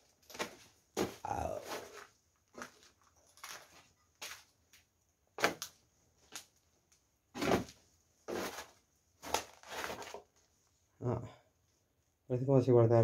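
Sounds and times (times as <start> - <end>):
footsteps scuffing on gritty floor: 0.3 - 4.5, 7.4 - 10.2.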